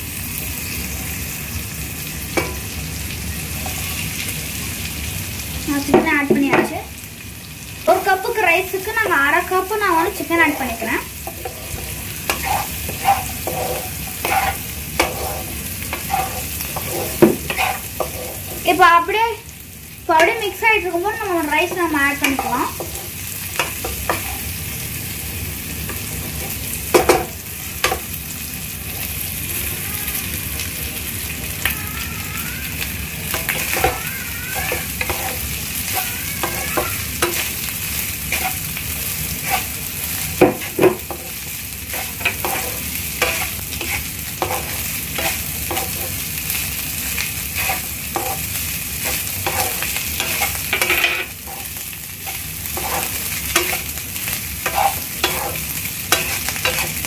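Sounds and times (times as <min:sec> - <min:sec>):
food sizzling in a frying pan: 0:00.0 - 0:57.0
wooden spatula knocking on pan: 0:17.2 - 0:17.5.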